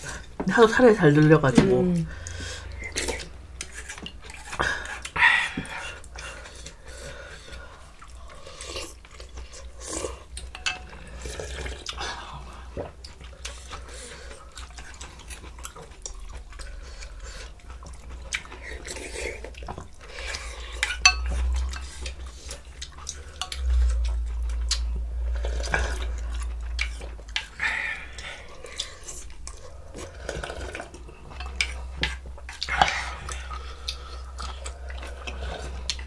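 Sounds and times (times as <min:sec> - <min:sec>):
soup stirring and splashing: 0:07.6 - 0:16.5, 0:17.1 - 0:36.0
utensils scraping bowls: 0:18.8 - 0:36.0.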